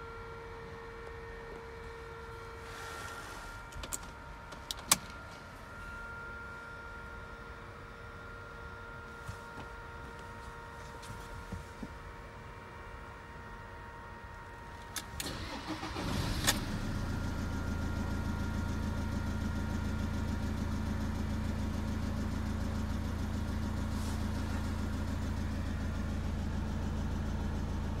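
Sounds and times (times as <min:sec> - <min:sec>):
diesel engine cranking and idling: 0:14.8 - 0:28.0.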